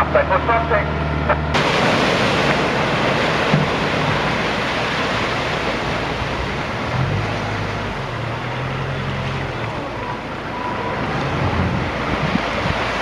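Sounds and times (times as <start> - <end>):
low engine hum: 0.0 - 13.0
waves breaking on shore: 1.6 - 13.0
wind rushing over microphone: 10.2 - 13.0.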